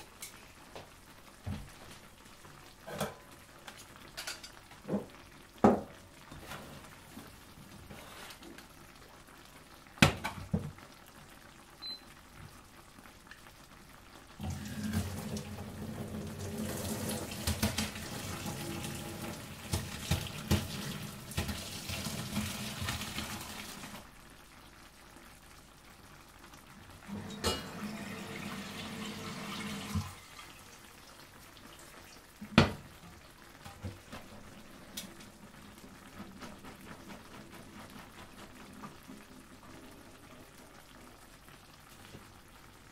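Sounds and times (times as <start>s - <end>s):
water splashing into a colander: 14.4s - 24.0s, 27.1s - 30.8s.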